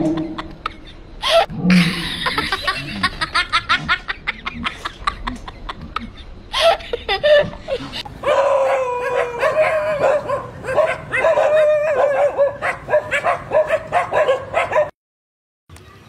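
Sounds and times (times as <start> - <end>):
dog whining and yelping: 8.2 - 14.9
dog barking: 8.2 - 15.0.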